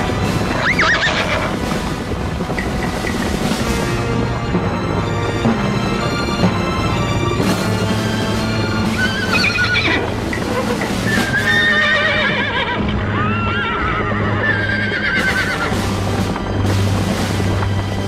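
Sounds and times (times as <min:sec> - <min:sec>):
horses whinnying: 0:00.0 - 0:03.3, 0:07.8 - 0:16.5
music with low drone: 0:00.0 - 0:18.0.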